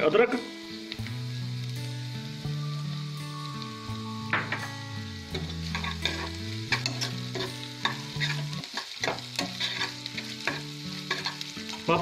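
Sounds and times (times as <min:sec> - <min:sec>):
onions sizzling in oil: 0:00.0 - 0:12.0
spoon scraping and clinking pan: 0:05.4 - 0:11.4.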